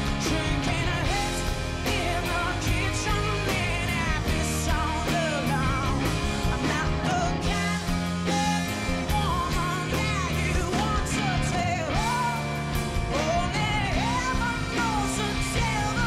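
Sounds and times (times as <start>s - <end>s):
rock band playing: 0.0s - 16.0s
woman singing: 0.1s - 12.4s, 13.1s - 16.0s.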